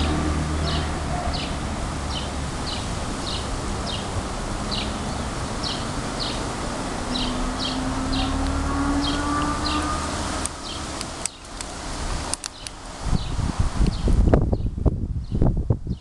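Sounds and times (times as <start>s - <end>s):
bird chirping: 4.7s - 6.5s, 7.1s - 11.6s.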